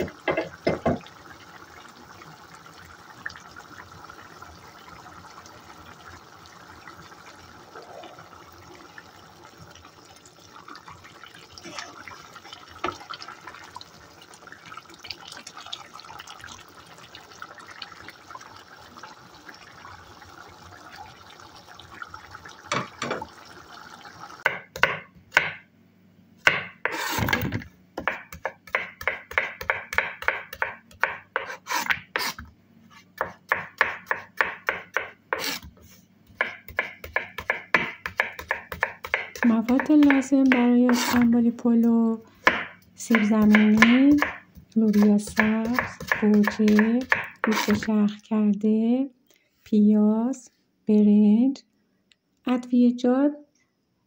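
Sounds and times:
stew bubbling faintly: 0:00.0 - 0:24.5
knife chopping on cutting board: 0:28.0 - 0:32.4, 0:33.2 - 0:35.7, 0:36.4 - 0:41.2.

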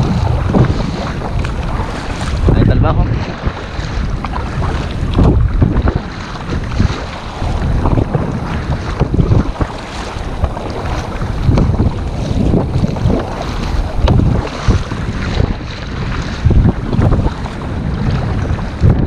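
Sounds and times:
water splashing against kayak: 0:00.0 - 0:19.0
wind buffeting microphone: 0:00.0 - 0:19.0.

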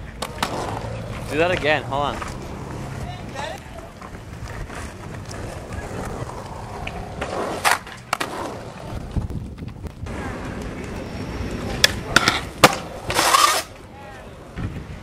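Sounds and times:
skateboard clacks: 0:00.0 - 0:13.8
skateboard wheels rolling on concrete: 0:00.0 - 0:15.0.

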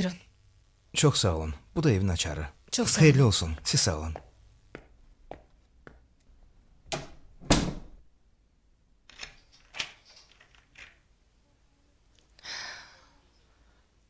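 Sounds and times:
door shutting with a thud: 0:06.9 - 0:08.0
key rattling in door lock: 0:09.1 - 0:11.0.

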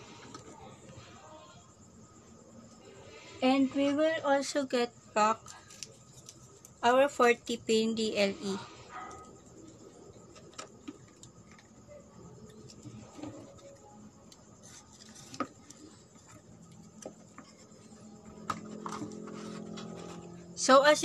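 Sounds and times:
hands handling cardboard: 0:12.4 - 0:20.2.

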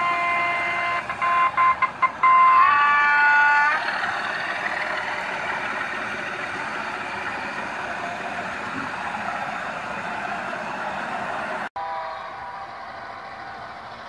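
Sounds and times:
model locomotive horn: 0:00.0 - 0:03.9.

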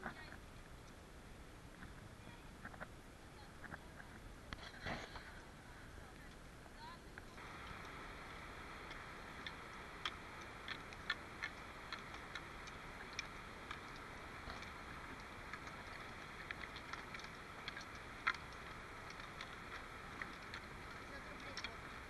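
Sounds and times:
trekking poles clicking on a bridge: 0:07.3 - 0:22.0
river water rushing: 0:07.4 - 0:22.0.

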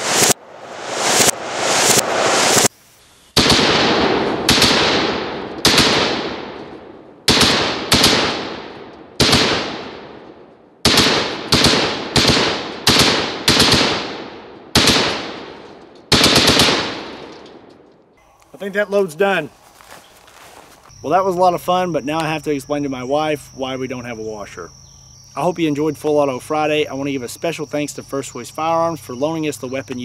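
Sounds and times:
gunshot echo: 0:03.4 - 0:17.7.

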